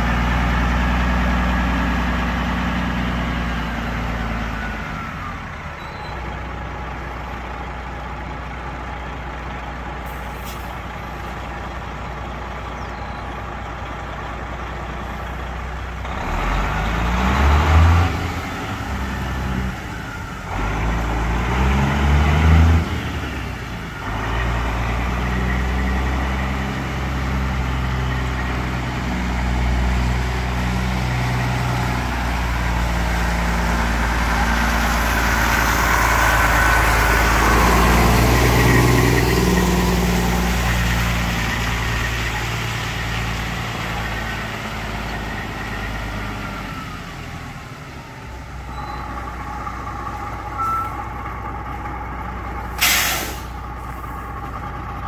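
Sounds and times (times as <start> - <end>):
truck diesel engine passing: 0.0 - 55.0
air brakes hiss: 10.1 - 10.8, 52.8 - 54.0.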